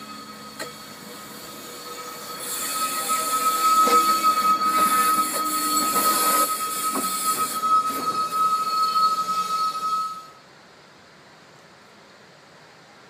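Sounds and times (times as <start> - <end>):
train wheels squealing: 0.0 - 10.4.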